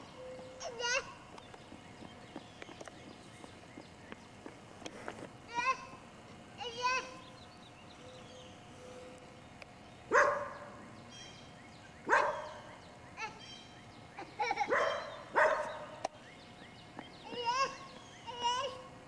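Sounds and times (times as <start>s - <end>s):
dog barking: 10.1s - 10.7s, 12.1s - 12.7s, 14.7s - 16.0s.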